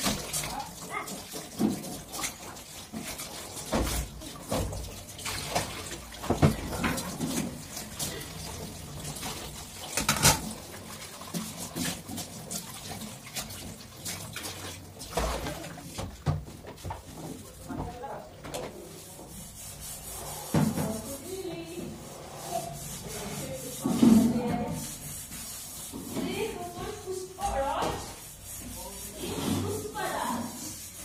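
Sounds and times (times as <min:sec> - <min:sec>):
water splashing: 0:00.0 - 0:17.7
scrubbing dishes: 0:00.0 - 0:31.0
utensils clattering in metal sink: 0:00.0 - 0:31.0.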